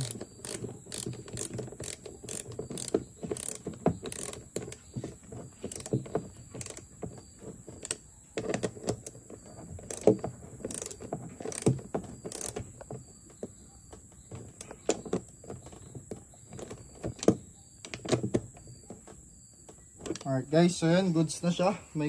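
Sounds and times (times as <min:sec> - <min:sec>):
socket ratchet clicking: 0:00.0 - 0:04.8, 0:05.7 - 0:06.9, 0:09.8 - 0:12.7.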